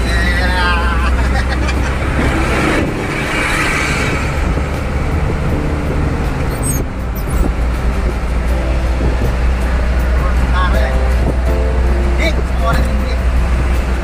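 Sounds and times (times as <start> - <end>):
tyre and wind noise: 1.8 - 10.4.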